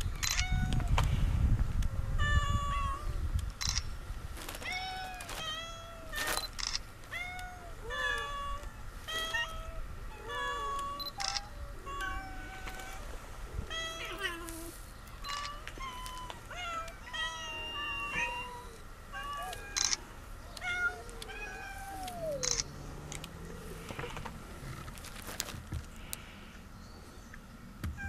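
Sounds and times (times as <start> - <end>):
sharp clicks: 3.3 - 3.9, 22.1 - 23.4
cats meowing: 4.6 - 22.7.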